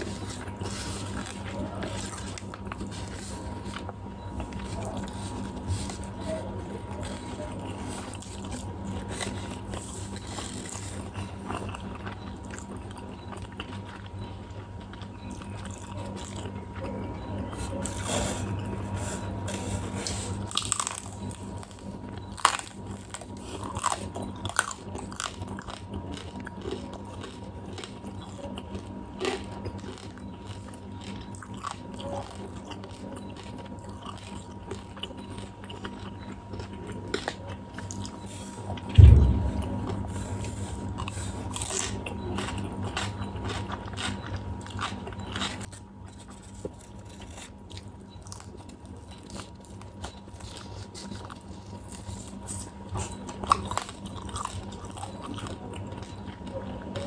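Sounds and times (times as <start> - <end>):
crunchy food bites and chewing: 0.0 - 57.0
loud low thump: 38.9 - 40.1.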